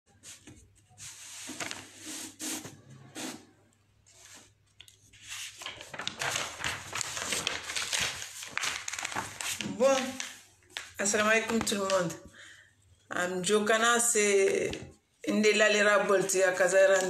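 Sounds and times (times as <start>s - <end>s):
paper rustling and crinkling: 0.2s - 3.3s, 4.1s - 12.2s.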